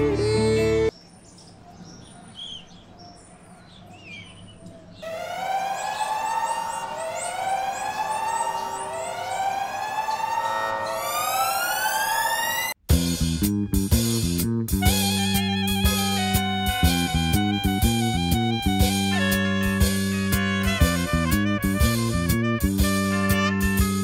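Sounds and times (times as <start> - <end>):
bird chirps: 0.2 - 12.5
wailing siren: 5.0 - 12.8.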